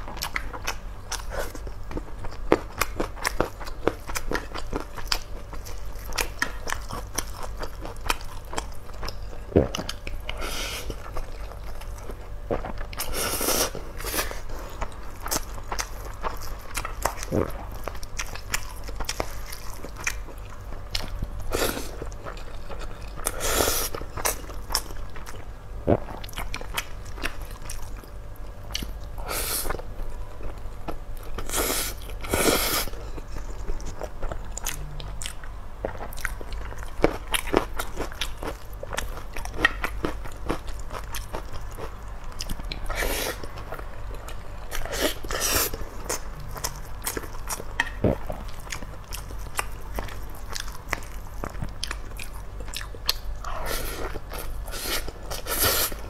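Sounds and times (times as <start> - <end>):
person chewing food: 0.1 - 56.0.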